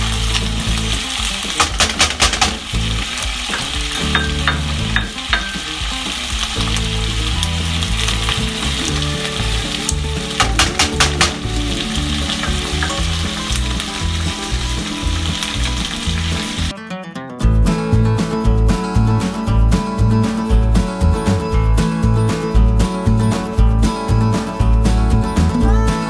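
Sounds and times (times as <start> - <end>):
food sizzling in a frying pan: 0.0 - 16.7
utensil clicking against pan: 1.5 - 5.8, 9.8 - 13.7.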